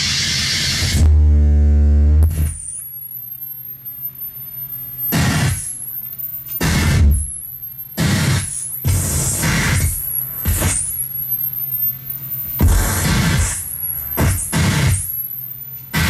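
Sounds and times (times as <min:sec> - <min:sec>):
loud low synthesizer drone: 0:00.0 - 0:02.6
harsh noise bursts: 0:00.0 - 0:16.0
wavering high whistle: 0:02.4 - 0:16.0.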